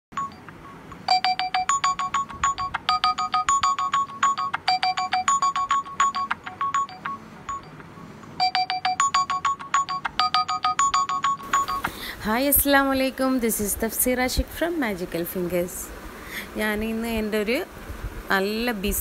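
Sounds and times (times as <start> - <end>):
phone alarm melody: 0.1 - 12.0.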